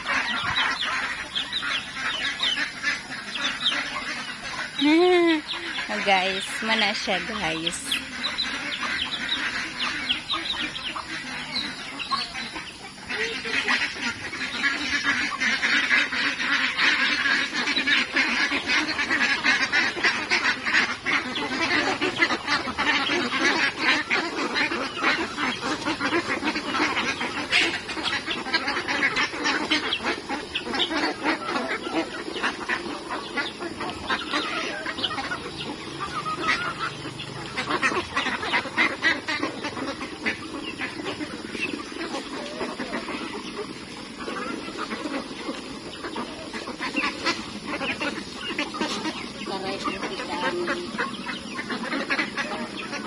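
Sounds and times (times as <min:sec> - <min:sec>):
ducks quacking: 0:00.0 - 0:53.0.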